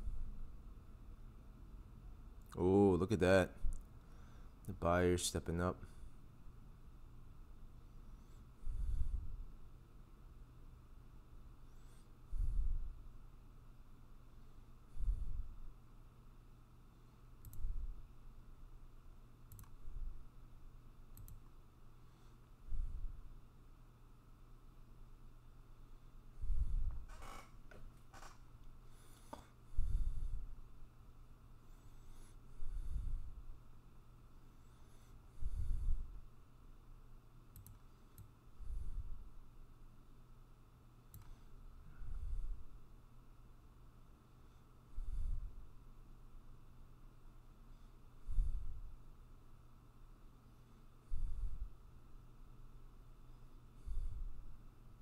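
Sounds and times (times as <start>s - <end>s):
man breathing into microphone: 8.4s - 9.5s, 11.7s - 13.0s, 14.9s - 15.6s, 26.4s - 27.1s, 28.8s - 30.6s, 31.6s - 33.5s, 34.7s - 36.2s, 38.6s - 39.2s, 41.3s - 42.7s, 44.9s - 45.6s, 48.2s - 48.9s, 51.0s - 51.8s, 53.8s - 54.5s
computer mouse clicks: 17.4s - 17.8s, 19.5s - 19.8s, 21.1s - 21.5s, 37.5s - 38.4s, 41.1s - 41.4s.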